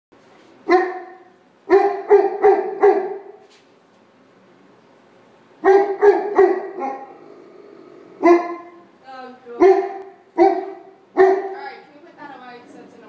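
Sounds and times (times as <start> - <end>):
dog barking deeply: 0.7 - 3.4, 5.6 - 8.8, 9.6 - 11.7.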